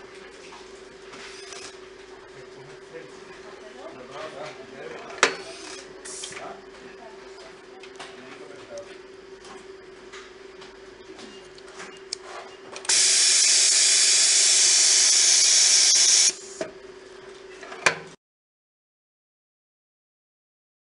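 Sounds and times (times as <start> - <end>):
cooling fans humming: 0.0 - 17.6
compressed air hiss: 12.9 - 16.6.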